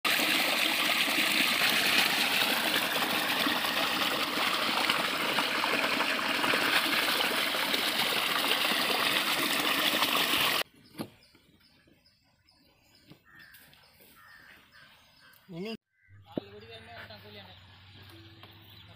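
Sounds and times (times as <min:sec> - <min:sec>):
water gushing from pipe: 0:00.0 - 0:10.6.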